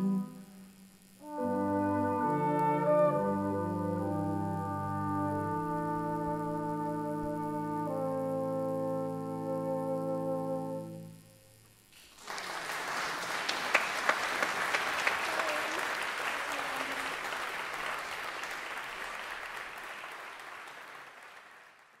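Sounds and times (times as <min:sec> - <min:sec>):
audience applause: 0:12.0 - 0:22.0.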